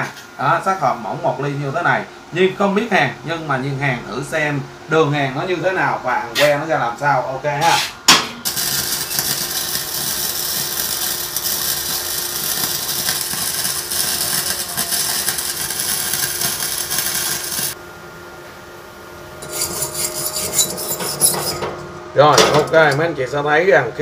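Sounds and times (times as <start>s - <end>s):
welding arc crackling: 8.4s - 17.8s.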